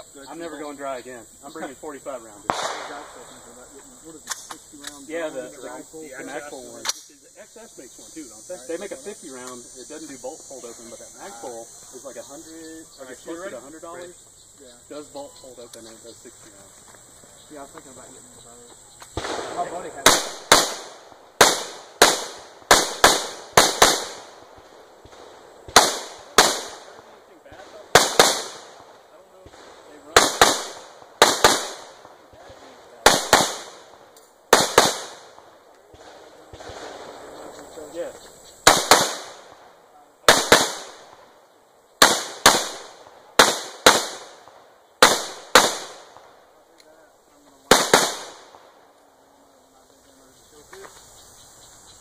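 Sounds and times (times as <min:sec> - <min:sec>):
rifle shots with echo: 0:02.4 - 0:04.5, 0:19.2 - 0:37.5, 0:38.6 - 0:41.4, 0:42.0 - 0:46.5, 0:47.6 - 0:48.9.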